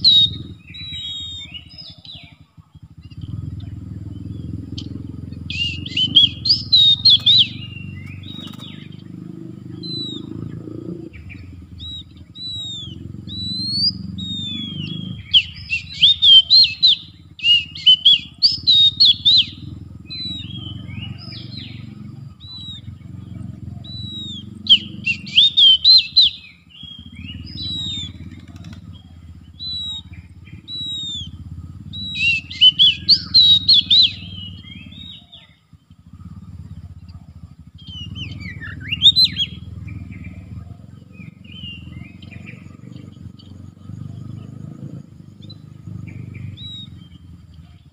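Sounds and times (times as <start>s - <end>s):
bird whistling song: 0.0s - 2.4s, 3.0s - 47.9s
bird chattering: 0.0s - 47.9s
low rumble: 2.8s - 15.8s, 19.4s - 25.3s, 26.9s - 35.2s.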